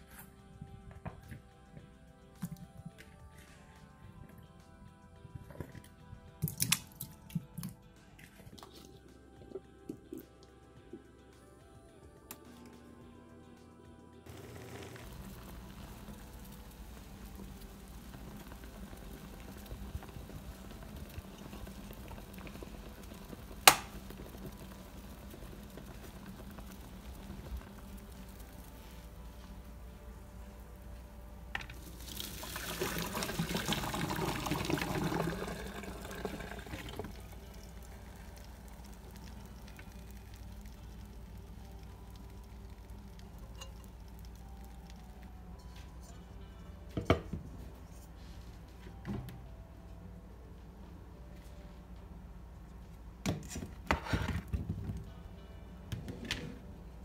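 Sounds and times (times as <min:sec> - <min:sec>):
water boiling and bubbling: 0:14.3 - 0:45.6
pan knocking on countertop: 0:47.0 - 0:47.5.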